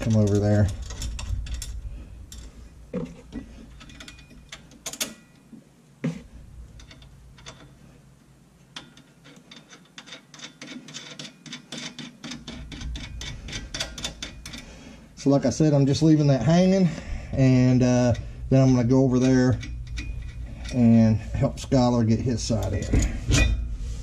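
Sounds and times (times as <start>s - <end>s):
metal nuts and washers clinking: 0.0s - 5.5s, 6.7s - 8.0s, 8.6s - 14.7s, 17.4s - 23.7s.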